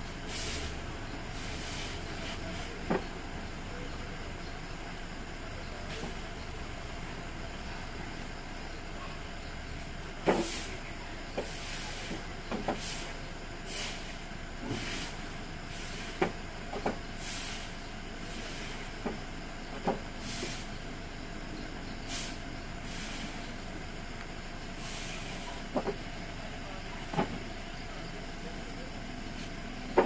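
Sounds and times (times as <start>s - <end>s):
broom sweeping leaves on concrete: 0.2s - 2.9s, 9.8s - 20.8s, 22.0s - 23.7s, 24.7s - 26.0s, 29.3s - 30.0s.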